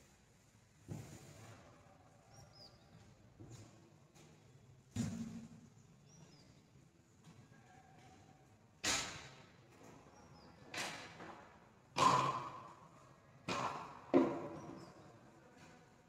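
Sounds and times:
sharp knocks on hard surface: 13.5s - 14.8s.

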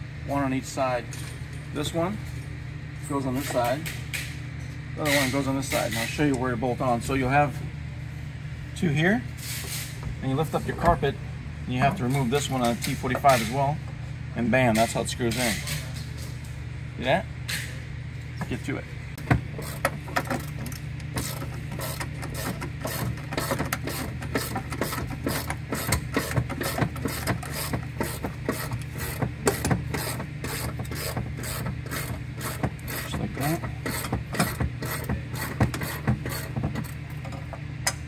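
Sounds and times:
ratchet wrench clicking: 19.6s - 37.0s.

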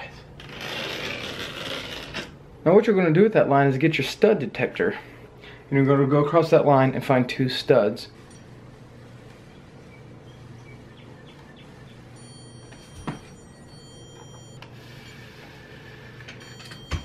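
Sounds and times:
low room hum: 0.0s - 17.0s
stud finder high-pitched tone: 9.9s - 15.4s.

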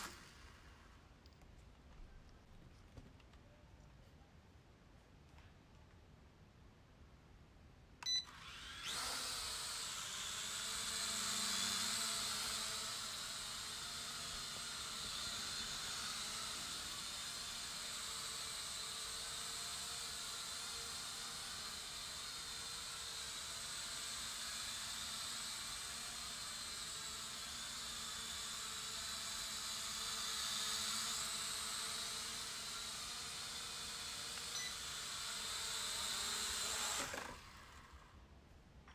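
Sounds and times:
toy drone motors whirring: 8.2s - 38.2s.

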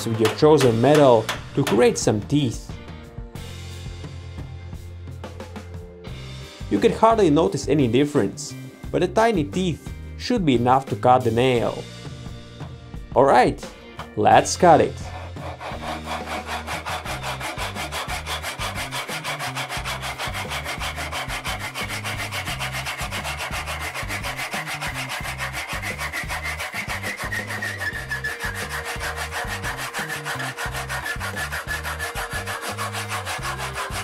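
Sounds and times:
hand saw rasping on steel: 0.0s - 2.0s, 14.7s - 34.0s.

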